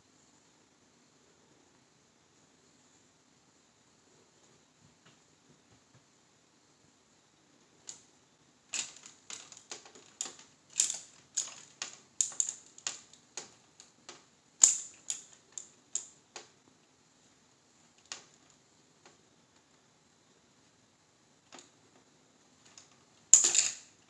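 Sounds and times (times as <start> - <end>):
plastic hanger clacking against door: 8.7 - 16.1, 22.7 - 23.9.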